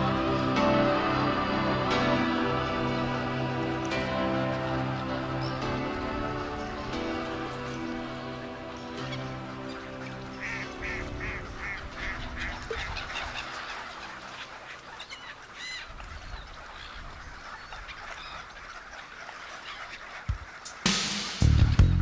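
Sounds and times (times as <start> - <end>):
background music: 0.0 - 14.8, 20.7 - 22.0
waterfowl calling: 0.0 - 21.4.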